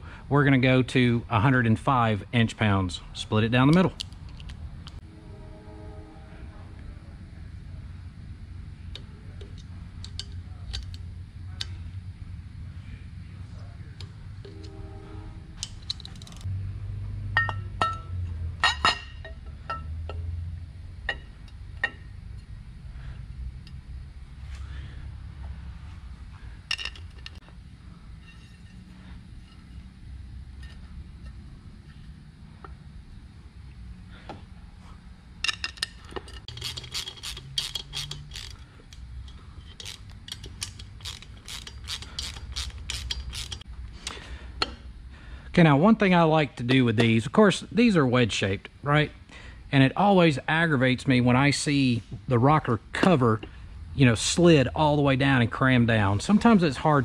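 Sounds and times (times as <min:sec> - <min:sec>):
metal parts clinking: 0:15.6 - 0:16.5, 0:26.7 - 0:27.4, 0:35.4 - 0:43.6
hand ratchet clicking: 0:35.7 - 0:43.7.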